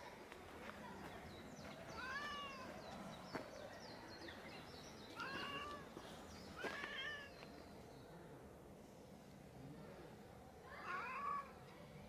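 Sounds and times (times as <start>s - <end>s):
cat meowing: 6.6s - 7.3s.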